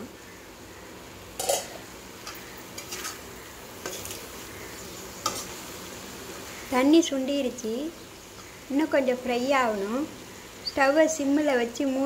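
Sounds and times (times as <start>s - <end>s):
food sizzling in a pan: 0.0s - 12.0s
metal spatula scraping pan: 1.4s - 4.2s, 5.2s - 5.6s.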